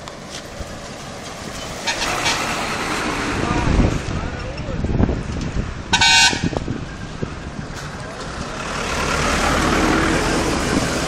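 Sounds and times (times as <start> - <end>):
truck passing close by: 0.0 - 4.4, 5.0 - 11.0.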